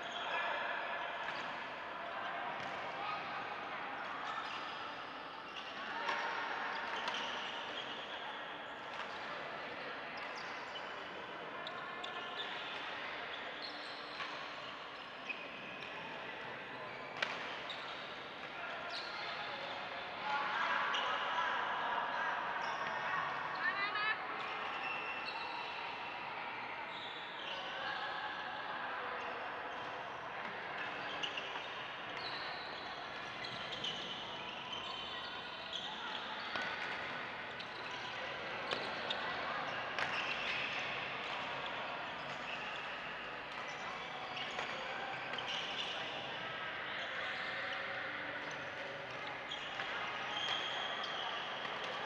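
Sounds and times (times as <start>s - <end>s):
background hubbub: 0.0s - 52.0s
shoe squeaks: 49.5s - 51.6s.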